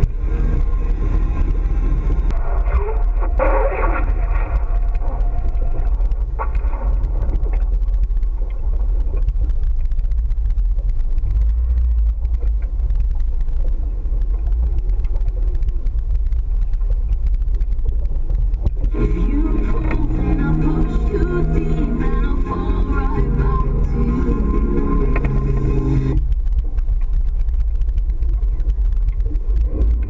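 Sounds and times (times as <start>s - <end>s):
boat engine rumbling: 0.0s - 30.0s.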